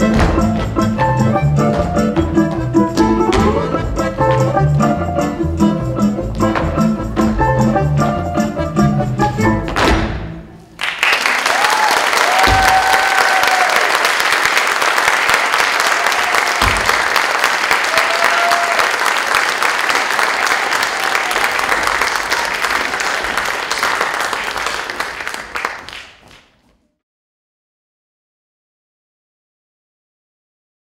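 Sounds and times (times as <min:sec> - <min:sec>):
audience calls: 0:10.8 - 0:25.6
audience applauding: 0:10.8 - 0:26.5.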